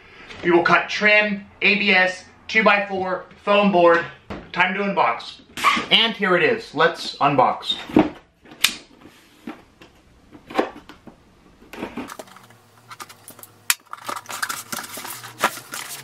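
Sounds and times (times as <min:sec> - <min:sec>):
cardboard and packaging crinkling: 0:11.8 - 0:16.0.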